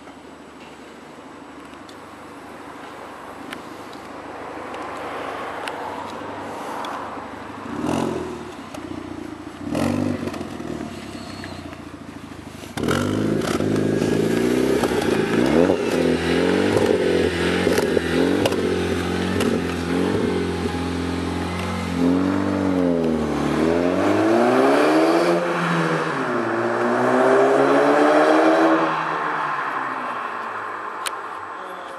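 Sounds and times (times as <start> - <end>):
car accelerating: 7.5 - 31.0
exhaust crackles: 7.6 - 24.0
car engine revving: 12.8 - 29.7.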